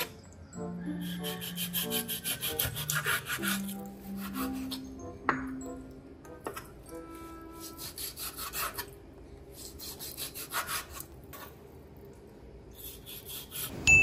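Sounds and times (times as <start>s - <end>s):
knife sawing through meat: 1.0s - 4.8s, 7.6s - 8.9s, 9.6s - 11.0s, 12.8s - 13.7s.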